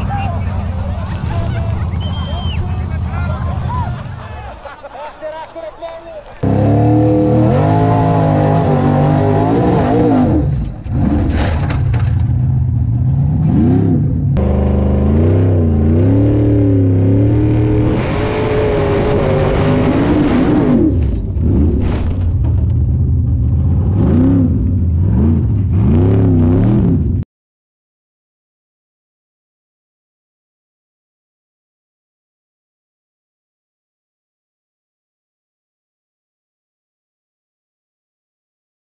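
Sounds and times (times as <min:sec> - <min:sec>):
buggy engine revving: 0:00.0 - 0:04.4, 0:06.4 - 0:27.2.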